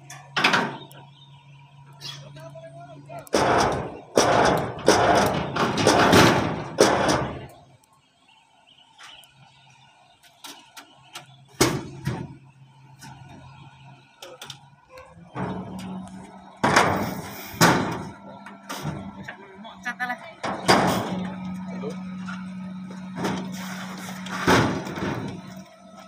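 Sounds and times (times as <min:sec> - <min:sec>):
low engine hum: 0:00.0 - 0:26.0
loud noisy thuds: 0:03.3 - 0:07.5, 0:15.2 - 0:19.2, 0:20.4 - 0:25.6.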